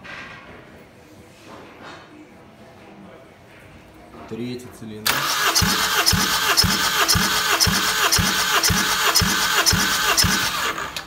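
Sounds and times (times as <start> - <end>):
engine cranking: 5.1 - 11.0.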